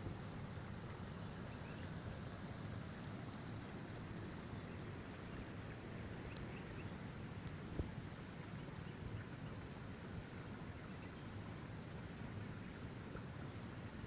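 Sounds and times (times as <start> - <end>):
creek water flowing: 0.0 - 14.0
faint ticks: 3.0 - 3.8, 6.2 - 9.9, 13.1 - 14.0.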